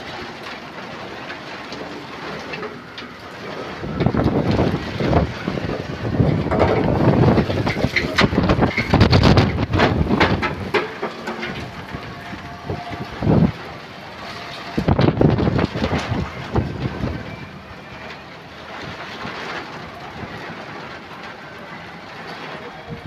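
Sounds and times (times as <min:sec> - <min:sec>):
rain: 0:00.0 - 0:23.0
gusty wind: 0:02.8 - 0:21.6.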